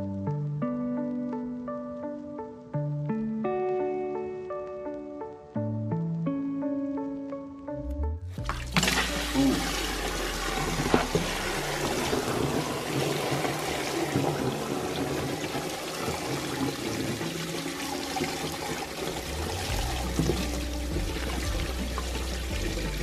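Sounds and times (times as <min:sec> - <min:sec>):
water pouring through floor drain grate: 0:08.4 - 0:23.0.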